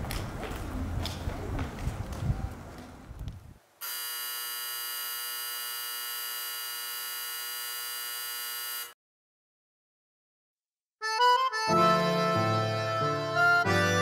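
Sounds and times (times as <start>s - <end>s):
electric hum: 3.8s - 8.9s.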